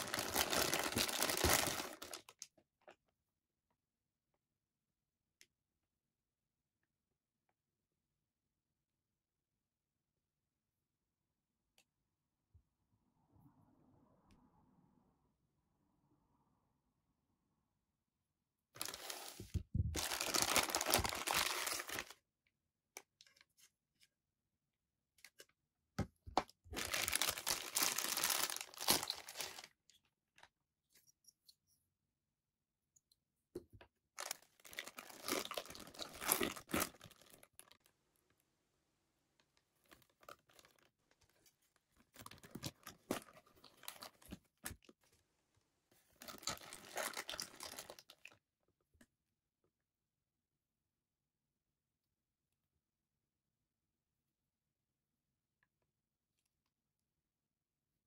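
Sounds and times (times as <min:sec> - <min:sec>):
plastic bags crinkling: 0:00.0 - 0:02.4, 0:18.8 - 0:22.2, 0:26.7 - 0:29.8, 0:34.2 - 0:37.8, 0:46.2 - 0:48.4.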